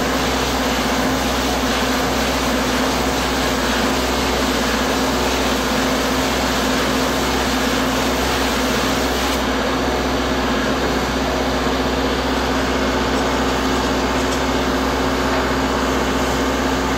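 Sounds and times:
spray gun hissing: 0:00.1 - 0:09.5
machine hum: 0:07.2 - 0:16.9.

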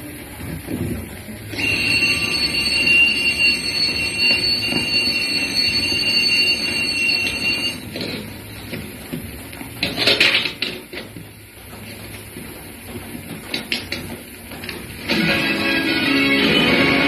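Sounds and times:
high-pitched held tone: 0:01.5 - 0:07.8.

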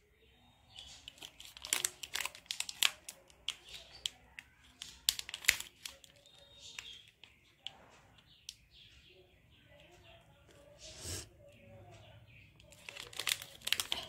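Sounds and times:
plastic wrapper crackling: 0:00.7 - 0:07.4, 0:12.6 - 0:14.0.

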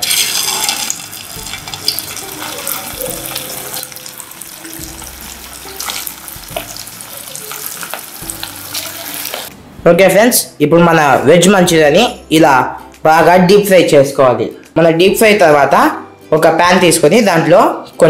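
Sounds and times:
food deep-frying in hot oil: 0:00.0 - 0:09.5
oil crackling and popping: 0:00.0 - 0:09.5.

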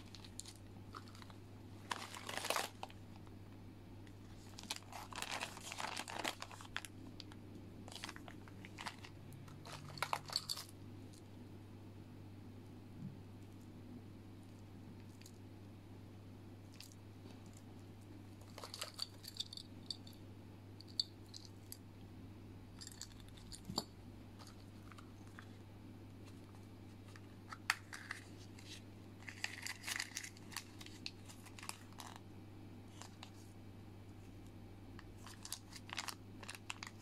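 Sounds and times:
cellophane bags crinkling: 0:00.0 - 0:03.3, 0:04.1 - 0:10.7, 0:18.4 - 0:19.6, 0:26.2 - 0:32.2, 0:35.0 - 0:37.0
steady low hum: 0:00.0 - 0:37.0.

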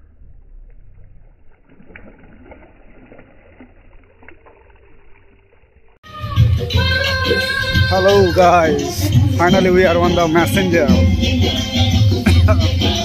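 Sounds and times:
water splashing and dripping: 0:00.0 - 0:06.0.

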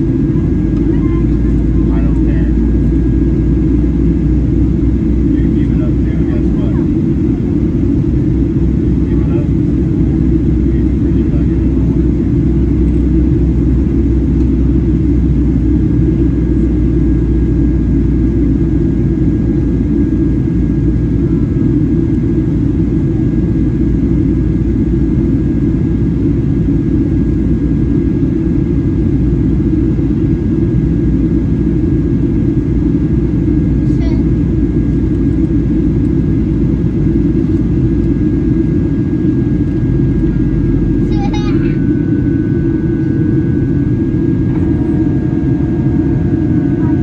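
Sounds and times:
airplane cabin engine rumble: 0:00.0 - 0:47.0
faint high whine: 0:37.5 - 0:47.0.

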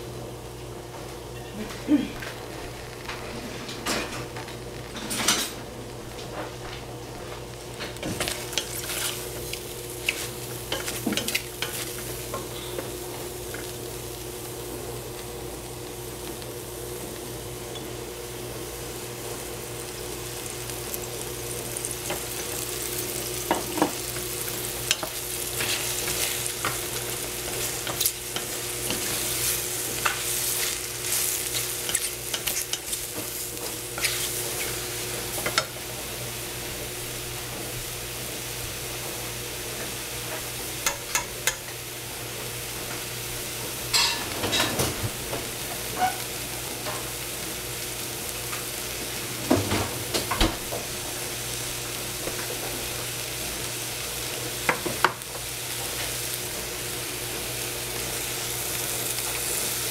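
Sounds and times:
mushrooms sizzling: 0:00.0 - 0:59.9
spatula scraping a saucepan: 0:34.0 - 0:34.8.

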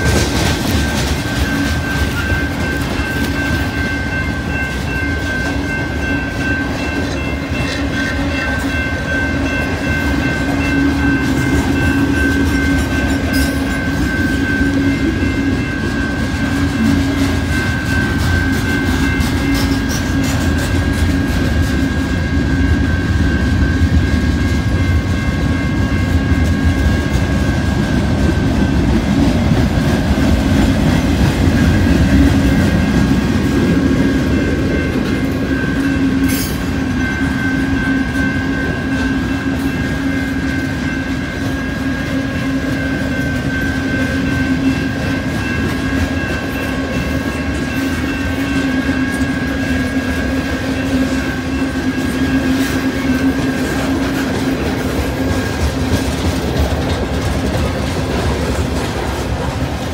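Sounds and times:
wheels clattering over rails: 0:00.0 - 0:03.7
high ringing tone: 0:00.0 - 0:57.9
freight train cars rumbling: 0:00.0 - 0:59.9.

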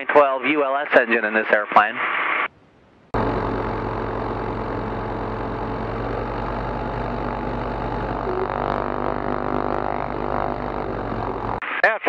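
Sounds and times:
aircraft engine and propeller running: 0:03.2 - 0:11.6.

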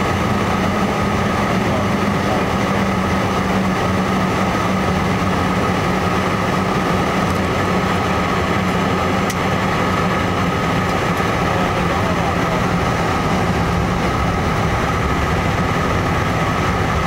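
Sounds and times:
jet engines humming and whining: 0:00.0 - 0:17.0
rushing air: 0:02.8 - 0:17.0.

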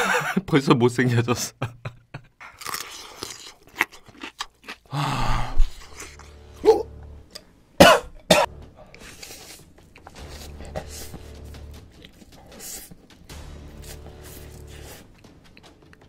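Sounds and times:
slurping and chewing: 0:02.4 - 0:07.4, 0:08.8 - 0:16.0
man coughing: 0:07.8 - 0:08.9.

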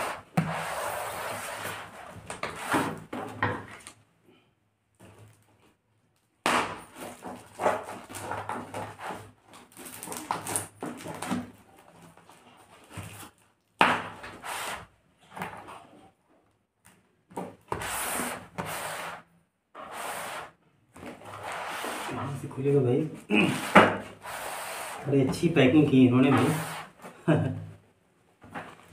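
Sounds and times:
plastic wrap rustling: 0:06.9 - 0:13.7.

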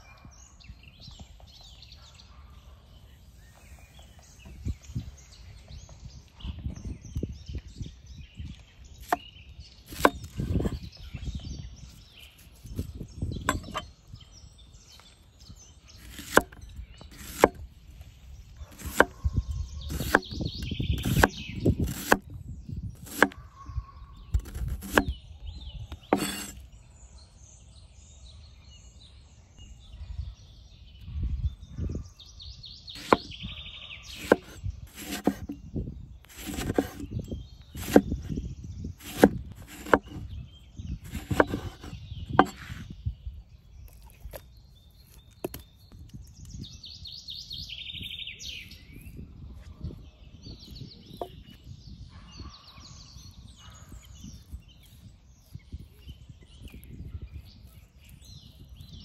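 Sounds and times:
faint birdsong: 0:00.0 - 0:59.0
chopping knocks: 0:16.0 - 0:17.6, 0:23.0 - 0:23.4, 0:24.4 - 0:25.1, 0:33.0 - 0:33.3, 0:34.2 - 0:35.5, 0:36.3 - 0:37.0, 0:37.8 - 0:38.3, 0:39.0 - 0:40.2, 0:41.1 - 0:42.8.

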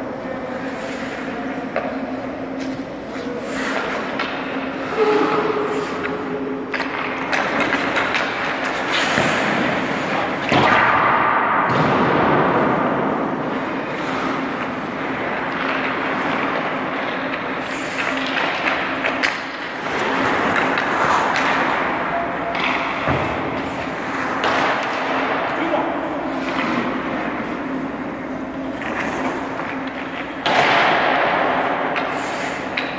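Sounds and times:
skates scraping on ice: 0:00.0 - 0:11.4, 0:12.5 - 0:32.9
steady low hum: 0:00.0 - 0:32.9
thuds of pucks and sticks: 0:05.4 - 0:13.4, 0:14.4 - 0:25.6, 0:28.4 - 0:32.9.

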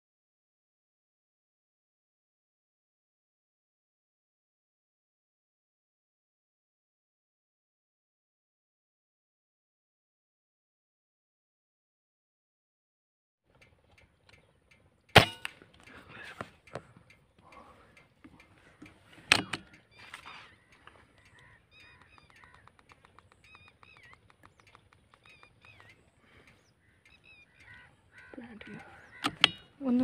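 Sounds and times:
fast run of clicks: 0:13.5 - 0:29.7
birds calling: 0:13.5 - 0:30.0
air rifle shots: 0:15.2 - 0:15.6.

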